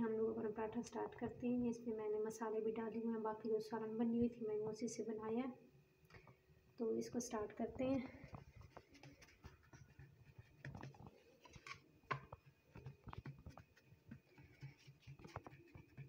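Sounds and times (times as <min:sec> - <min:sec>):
fingers patting dough on plate: 0:08.2 - 0:16.0.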